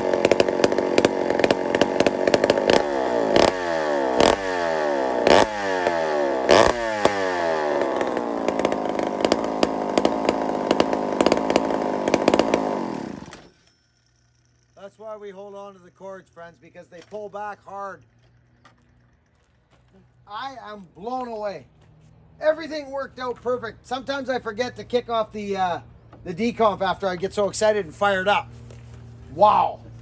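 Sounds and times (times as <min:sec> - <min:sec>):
chainsaw running: 0:00.0 - 0:20.4.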